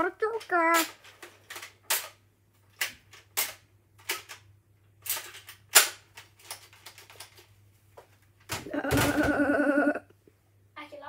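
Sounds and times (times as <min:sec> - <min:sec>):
toy dart blaster clacking and snapping: 0:00.4 - 0:02.2, 0:02.8 - 0:04.4, 0:05.0 - 0:06.6.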